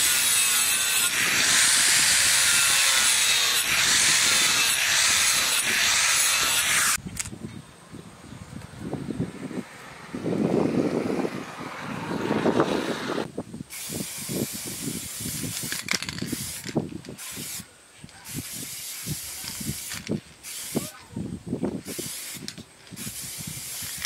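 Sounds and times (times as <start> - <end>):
aerosol spray can hissing: 13.7 - 17.7, 18.3 - 21.0, 21.8 - 24.0.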